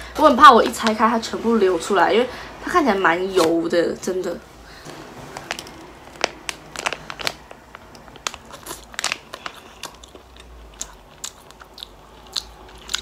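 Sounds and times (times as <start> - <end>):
person chewing: 5.4 - 13.0.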